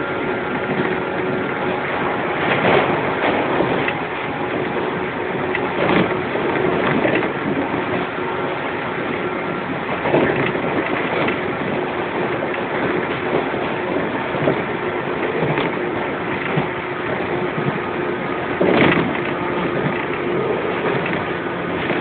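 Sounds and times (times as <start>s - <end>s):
train clattering: 0.0s - 22.0s
train motor and gear hum: 0.0s - 22.0s
wheel-on-rail rumble: 0.0s - 22.0s.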